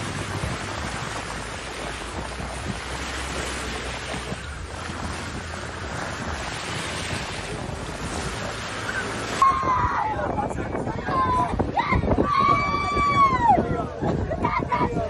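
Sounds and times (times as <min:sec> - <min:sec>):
sea waves washing on shore: 0:00.0 - 0:14.3
wind buffeting microphone: 0:00.0 - 0:15.0.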